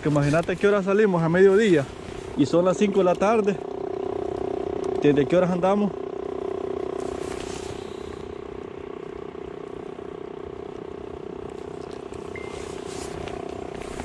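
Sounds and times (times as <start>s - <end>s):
small motor humming: 1.4s - 14.0s
high beep: 12.3s - 12.6s.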